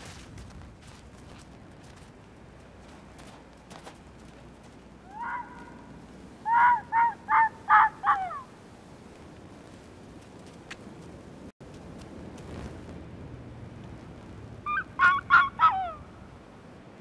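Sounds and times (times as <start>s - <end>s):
fox barking: 5.0s - 8.5s, 14.6s - 16.0s.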